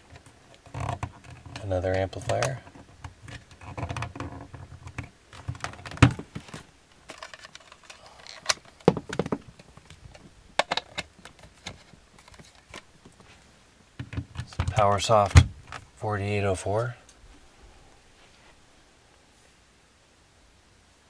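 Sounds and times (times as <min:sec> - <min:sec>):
plug clicks and knocks: 0:10.6 - 0:12.8.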